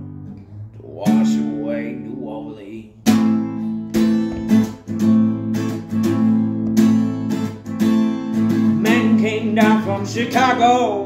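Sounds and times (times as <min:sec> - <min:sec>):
acoustic guitar strumming chords: 0:00.0 - 0:11.0
person singing: 0:00.7 - 0:03.0, 0:08.8 - 0:11.0.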